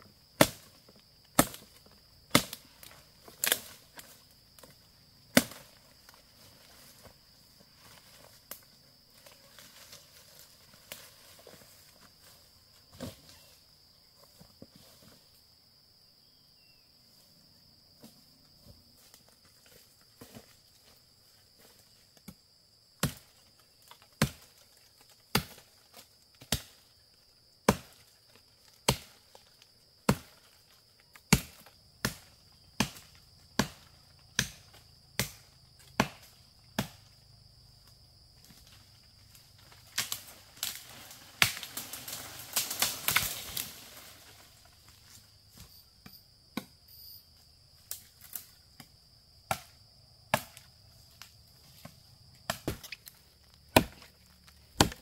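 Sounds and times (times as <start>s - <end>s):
wood chopping strokes: 0.4s - 4.7s, 31.2s - 37.1s, 49.5s - 50.7s, 51.6s - 55.0s
crackling and rustling: 38.7s - 45.2s.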